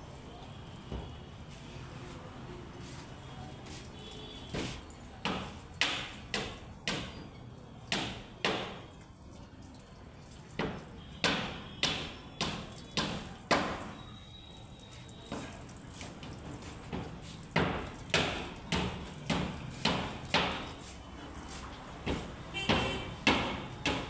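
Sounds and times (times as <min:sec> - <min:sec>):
sharp knocks: 0:10.6 - 0:13.9, 0:17.6 - 0:20.7, 0:22.0 - 0:24.0.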